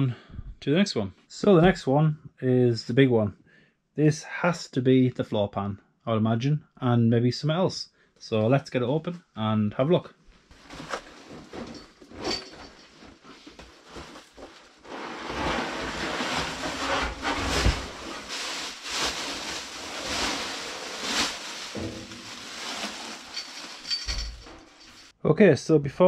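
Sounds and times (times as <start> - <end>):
cardboard box rustling and crinkling: 13.1 - 25.1.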